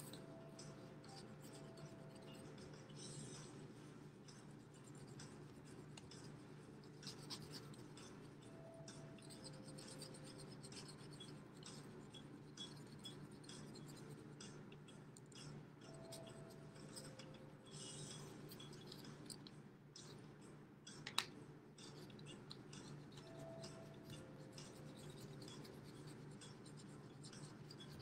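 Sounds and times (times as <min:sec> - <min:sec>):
felt-tip marker scratching on paper: 0:00.0 - 0:14.6, 0:21.8 - 0:28.0.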